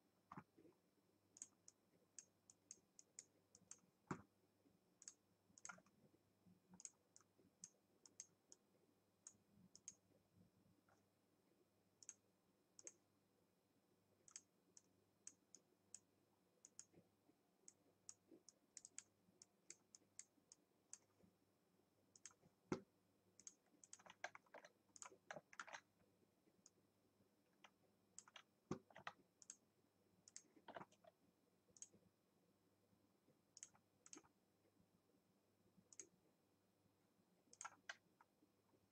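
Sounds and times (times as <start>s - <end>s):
mouse and keyboard clicking: 1.4s - 4.3s, 5.0s - 6.0s, 6.7s - 8.6s, 9.3s - 10.0s, 12.8s - 13.0s, 17.7s - 21.1s, 22.2s - 22.8s, 23.4s - 25.9s, 27.5s - 29.6s, 30.2s - 32.0s, 33.6s - 34.3s, 37.5s - 38.3s.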